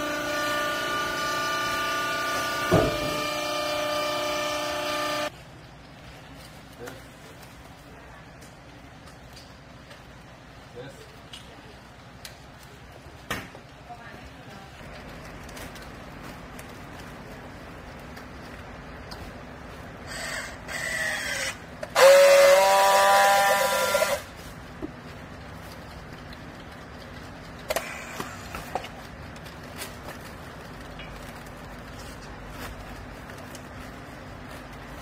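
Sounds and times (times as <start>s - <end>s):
strapping tool motor whine: 0.0s - 5.3s, 21.8s - 24.3s.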